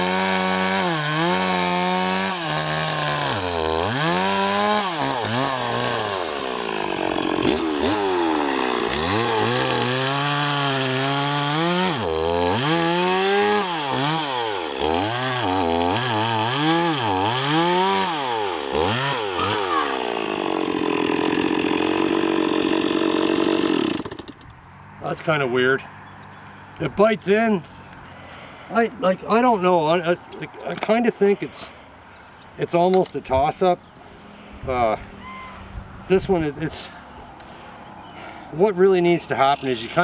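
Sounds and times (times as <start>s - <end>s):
chainsaw cutting into log: 0.0s - 24.4s.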